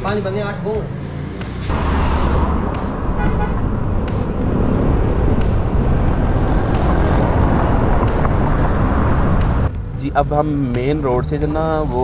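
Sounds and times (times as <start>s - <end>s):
road and tyre noise: 0.0s - 12.0s
wind rumbling on microphone: 1.7s - 9.7s.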